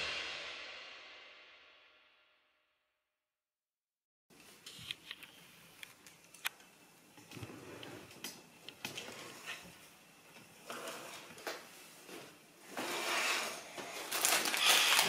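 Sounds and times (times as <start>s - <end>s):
plastic pieces clattering on countertop: 13.8s - 15.0s.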